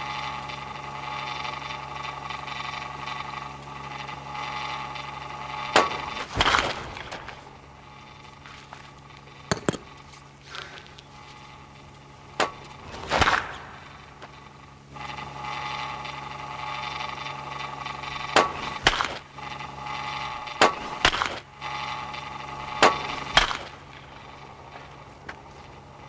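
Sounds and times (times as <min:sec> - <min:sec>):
drone of held tones: 0:13.6 - 0:26.0.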